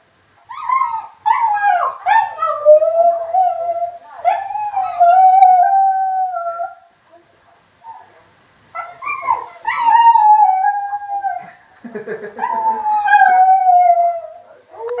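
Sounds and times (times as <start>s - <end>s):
dog yipping: 0.5s - 2.6s, 4.3s - 5.2s, 8.8s - 10.2s, 12.4s - 13.4s
dog howling: 8.8s - 11.4s, 12.4s - 15.0s.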